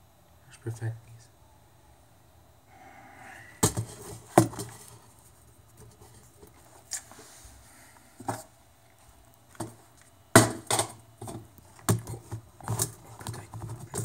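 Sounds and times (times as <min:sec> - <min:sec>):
camera handling knocks and bumps: 0:03.6 - 0:04.8, 0:10.4 - 0:14.0.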